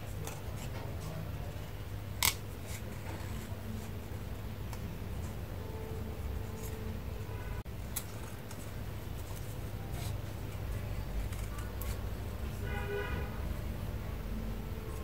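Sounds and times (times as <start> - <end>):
low background hum: 0.0 - 15.0
scissors snipping paper: 7.9 - 12.2.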